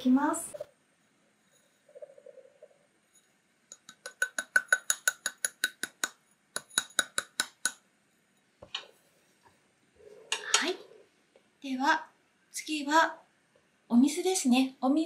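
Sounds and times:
taps on measuring cup: 3.7s - 7.8s.

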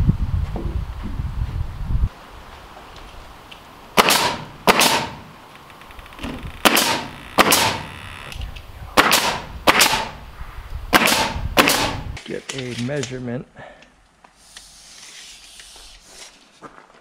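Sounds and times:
nail gun firing: 4.0s - 5.3s, 6.6s - 7.9s, 9.0s - 10.2s, 10.9s - 12.1s.

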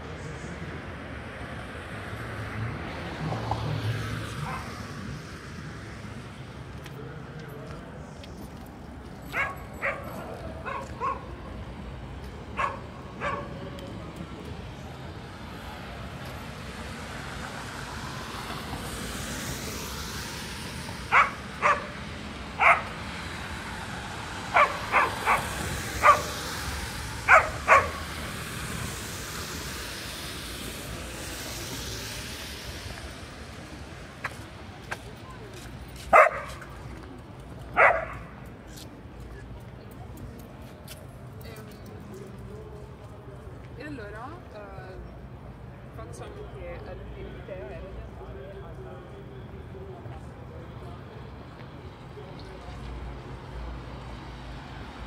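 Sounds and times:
vehicles swishing past: 0.0s - 55.0s
dog barking: 4.4s - 4.7s, 9.3s - 11.3s, 12.6s - 13.6s, 21.1s - 22.0s, 22.6s - 23.0s, 24.5s - 26.4s, 27.3s - 28.0s, 36.1s - 36.6s, 37.8s - 38.3s.

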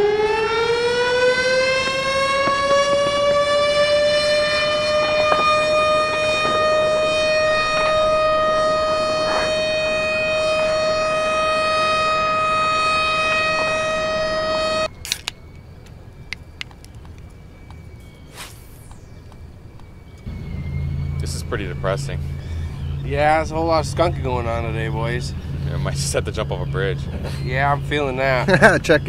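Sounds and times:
loud siren-like tone: 0.0s - 15.0s, 17.4s - 29.0s
quiet outdoor ambience: 0.0s - 29.0s
sharp clicks: 14.9s - 17.8s.

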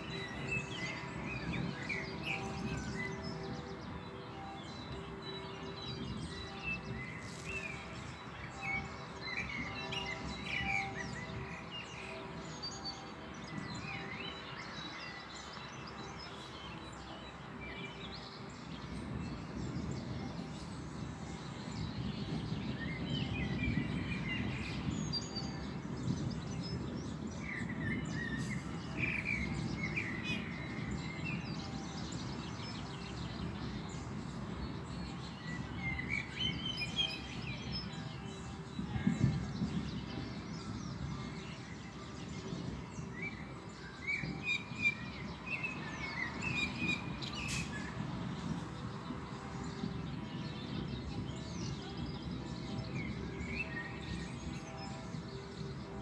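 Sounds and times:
songbirds chirping: 0.0s - 56.0s
distant thunder rumbling: 18.8s - 32.4s, 33.1s - 43.5s.

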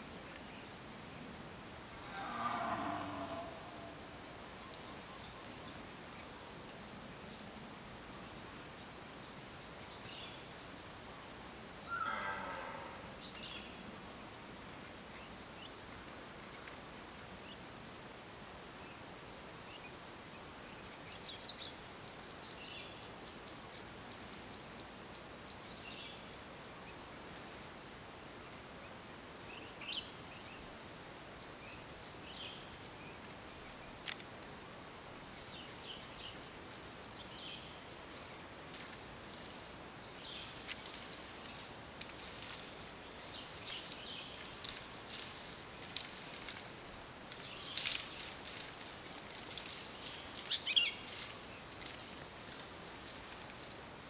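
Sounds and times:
steady faint hiss: 0.0s - 54.0s
lower bird call: 2.0s - 5.5s.

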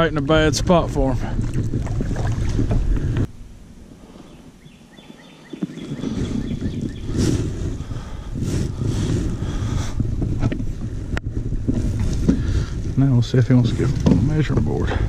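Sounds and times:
wind rumble on microphone: 0.0s - 15.0s
bird chirping: 4.0s - 7.3s.

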